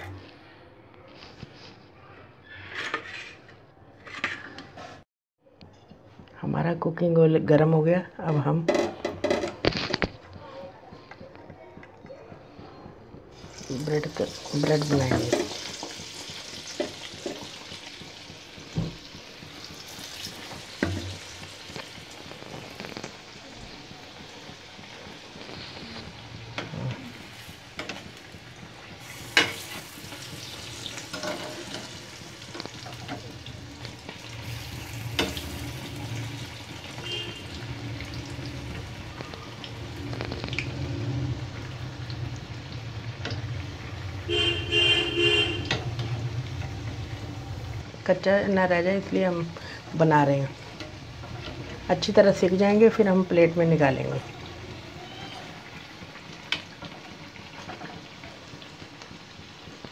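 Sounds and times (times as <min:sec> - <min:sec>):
food deep-frying in sizzling oil: 0:13.1 - 0:59.9.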